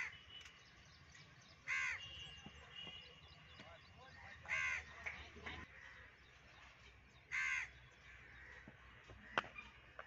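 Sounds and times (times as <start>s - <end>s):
faint outdoor background: 0.0s - 10.0s
crow cawing: 1.7s - 2.0s, 4.5s - 4.9s, 7.3s - 9.4s.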